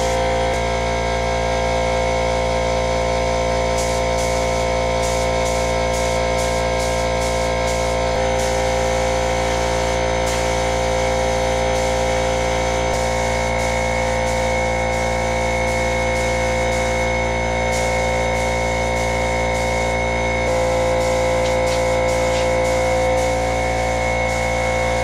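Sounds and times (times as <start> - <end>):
paint spray gun air hiss: 3.7 - 25.0
ventilation fan humming: 20.4 - 23.9.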